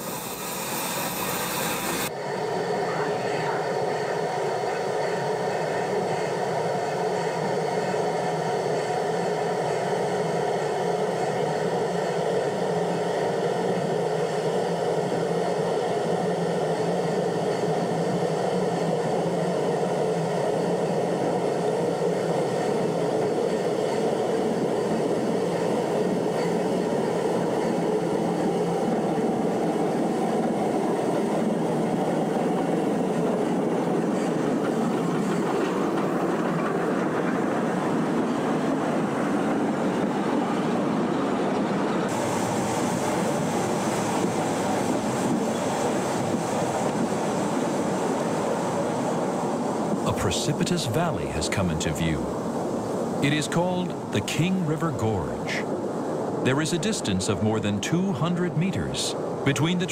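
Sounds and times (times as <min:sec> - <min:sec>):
high hiss: 0:00.0 - 0:02.1
steam train running on track: 0:00.0 - 0:59.9.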